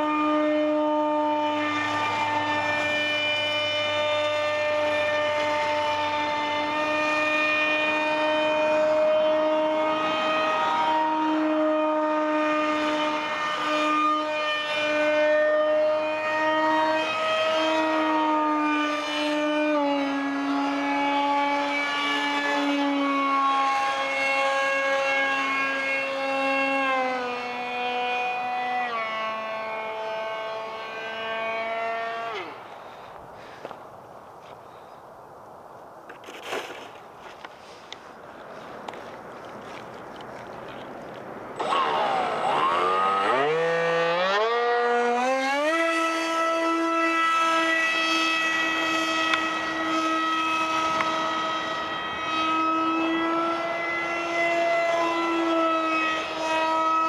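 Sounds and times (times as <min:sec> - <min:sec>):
model jet motor whining: 0:00.0 - 0:32.9, 0:41.6 - 0:57.0.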